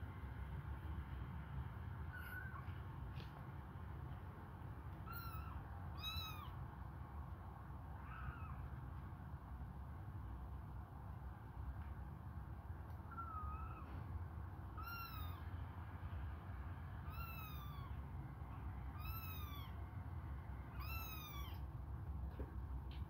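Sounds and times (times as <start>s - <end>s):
kittens meowing: 2.0s - 2.8s, 5.0s - 6.6s, 7.9s - 8.8s, 13.0s - 15.6s, 17.0s - 19.8s, 20.7s - 21.7s.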